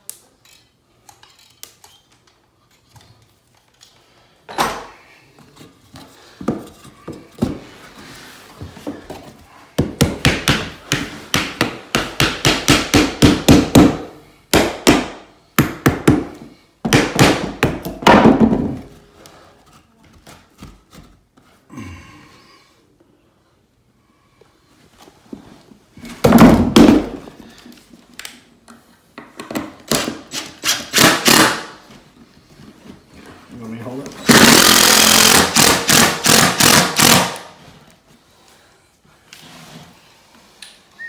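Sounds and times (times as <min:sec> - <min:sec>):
hammer knocking wood block: 0:09.8 - 0:18.6.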